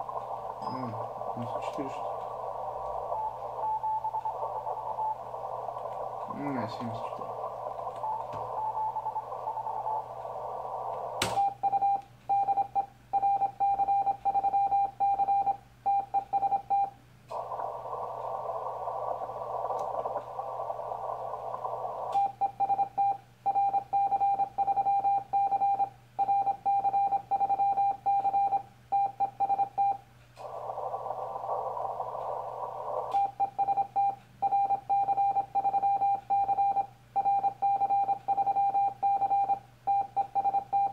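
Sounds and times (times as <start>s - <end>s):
radio receiver hiss: 0.0s - 13.6s, 16.0s - 24.6s, 29.0s - 40.9s
morse code beeps: 3.0s - 5.3s, 8.0s - 10.1s, 11.3s - 17.0s, 22.1s - 30.0s, 33.1s - 40.9s.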